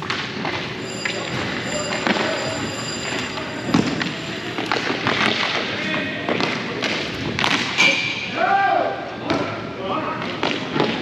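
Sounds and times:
voices calling out: 0.8 - 4.8.

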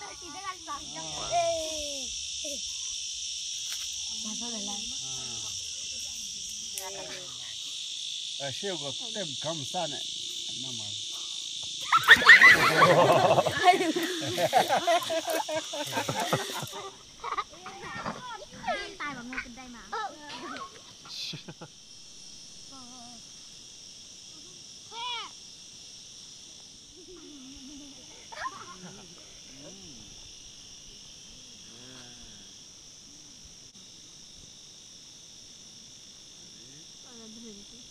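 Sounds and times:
children calling and shouting: 0.0 - 2.9, 11.8 - 21.2, 24.3 - 25.4, 27.0 - 29.8
insects buzzing: 0.0 - 37.9.

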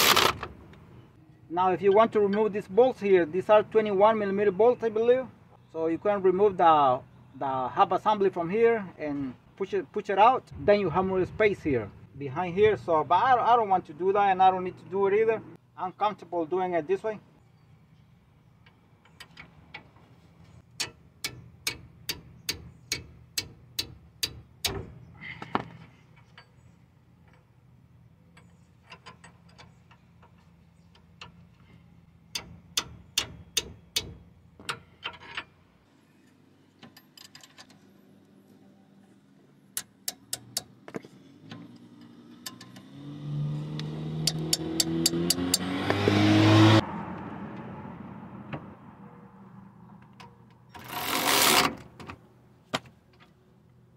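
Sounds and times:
cordless ratchet motor: 50.8 - 51.7.

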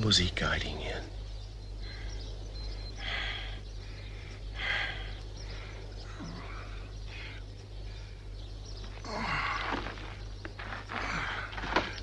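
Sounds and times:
man breathing hard: 1.8 - 8.4.

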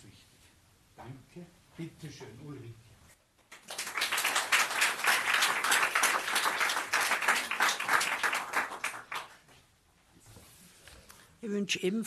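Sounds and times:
audience applauding: 3.5 - 9.4.

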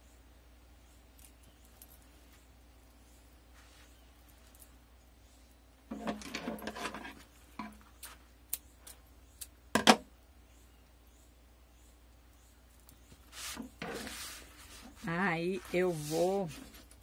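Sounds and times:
fabric and thread rustling: 12.7 - 17.0.

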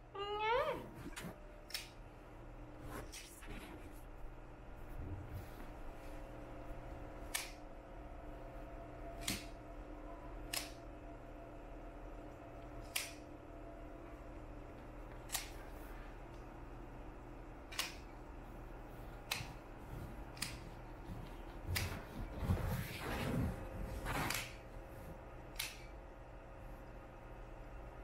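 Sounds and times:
nail clipper clicks: 10.5 - 10.8, 12.8 - 13.2, 17.7 - 18.0, 25.5 - 25.9.

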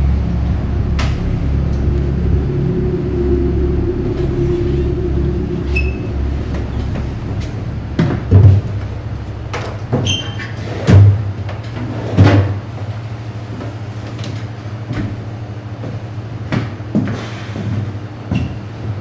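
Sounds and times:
low musical drone: 0.0 - 11.8.

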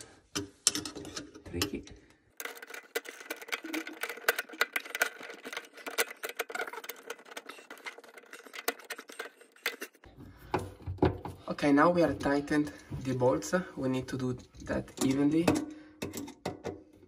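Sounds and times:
metal clicks and clinks: 2.4 - 10.0.

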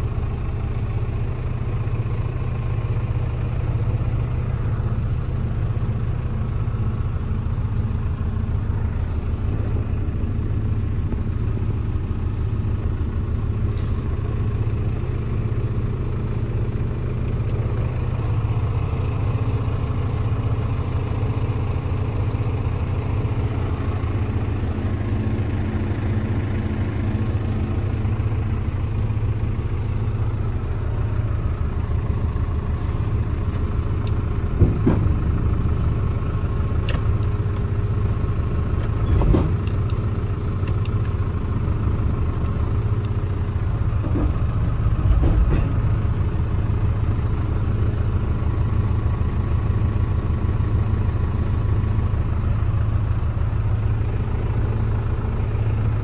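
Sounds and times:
diesel engine running: 0.0 - 56.0
sharp clunks: 34.6 - 35.2, 39.1 - 39.8, 44.0 - 46.0.

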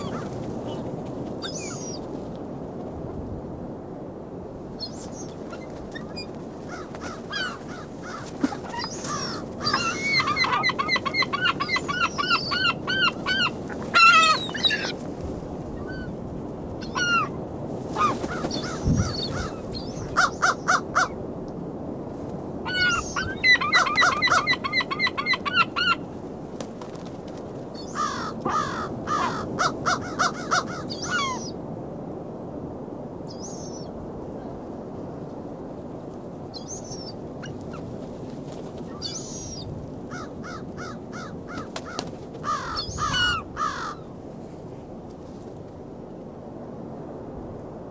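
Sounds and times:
gulls yelping calls: 0.0 - 0.8, 4.8 - 15.0, 16.8 - 17.4, 22.7 - 26.0, 27.8 - 31.6.

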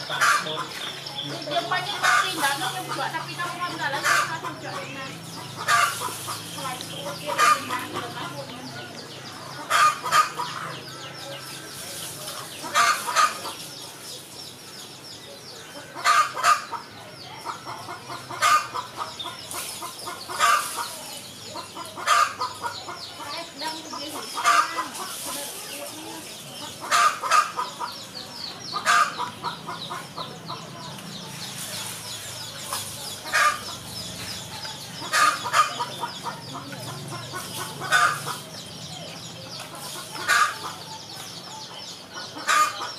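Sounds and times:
chickens clucking: 0.0 - 42.9.

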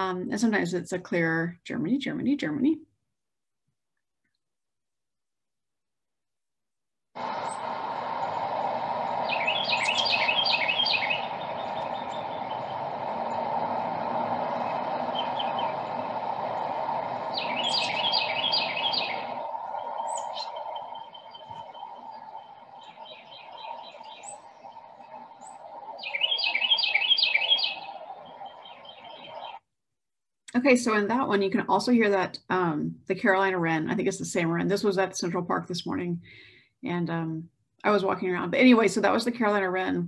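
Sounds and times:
steady low rush: 7.2 - 29.6
wren singing rolling song: 7.2 - 29.6
chickadee chirping: 9.2 - 13.4, 17.2 - 29.6
titmouse calling: 9.2 - 13.4, 17.2 - 29.6.

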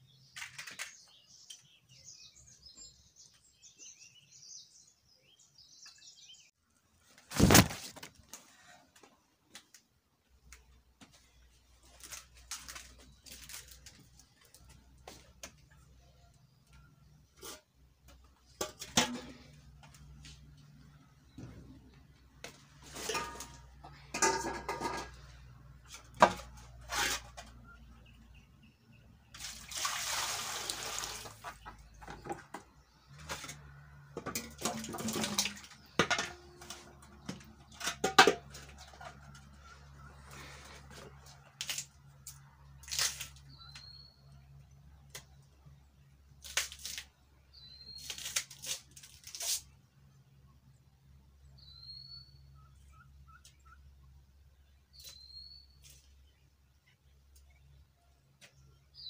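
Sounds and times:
bird chirping: 0.0 - 6.6, 43.4 - 46.2, 47.4 - 48.3, 51.4 - 59.0
metal pots clanking on floor: 22.9 - 25.3
water splashing in metal pot: 34.3 - 35.9.

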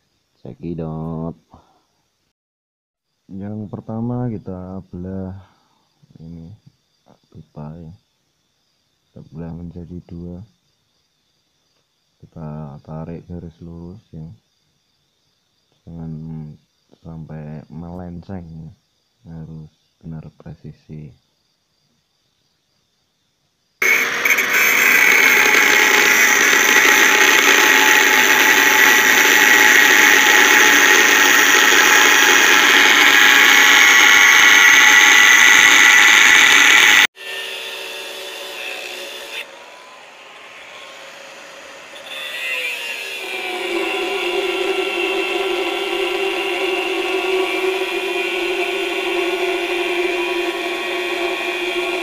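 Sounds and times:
angle grinder cutting metal pipe: 23.8 - 52.0.

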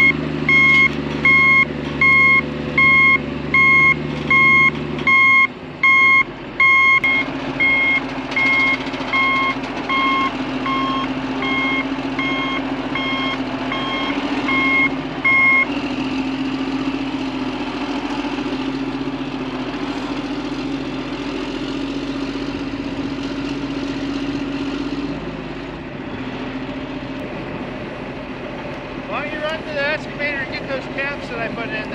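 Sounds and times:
reverse alarm beeping: 0.0 - 15.7
tractor engine under load: 0.0 - 31.9.

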